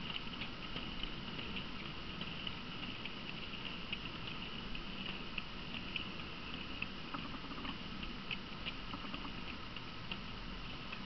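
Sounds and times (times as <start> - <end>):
small wheels clicking over track: 0.0 - 11.0.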